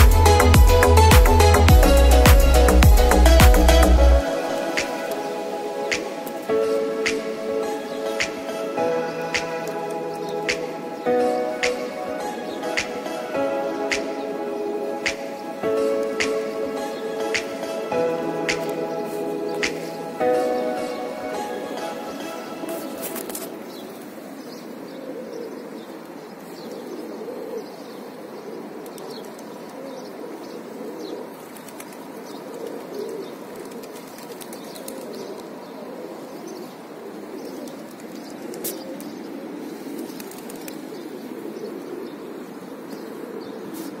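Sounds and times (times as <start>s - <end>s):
pigeons cooing: 1.5s - 44.0s
wings flapping: 40.0s - 41.0s.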